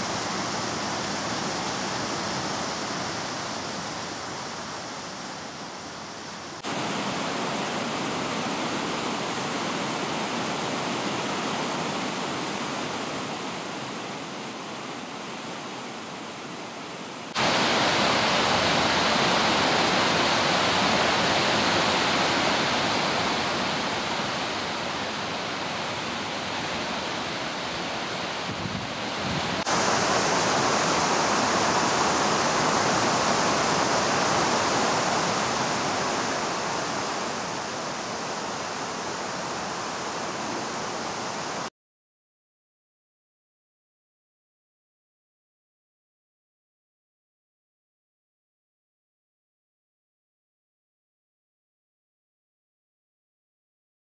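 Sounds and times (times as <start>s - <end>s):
water rushing over rocks: 0.0s - 41.7s.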